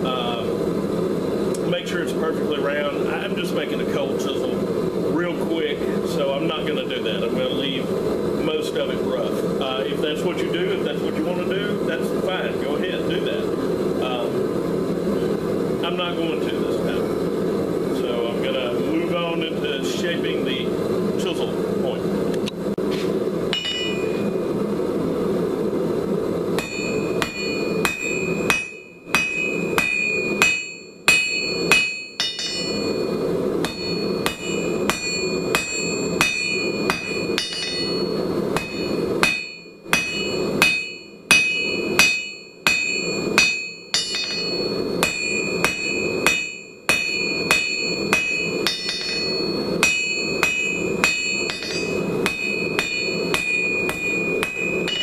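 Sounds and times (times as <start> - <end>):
hammer striking steel on anvil: 23.5 - 24.3, 26.6 - 55.0.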